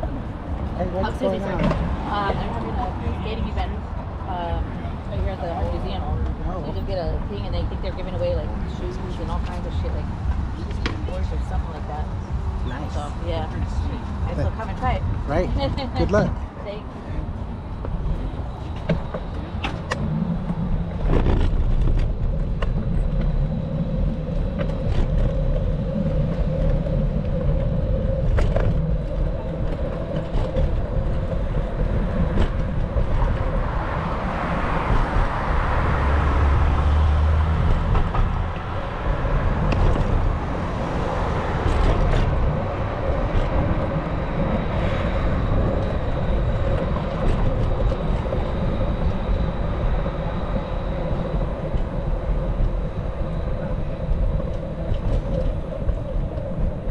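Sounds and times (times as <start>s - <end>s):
city street traffic: 0.0s - 56.9s
wind on microphone: 0.0s - 56.9s
vehicle passing by: 31.4s - 51.0s.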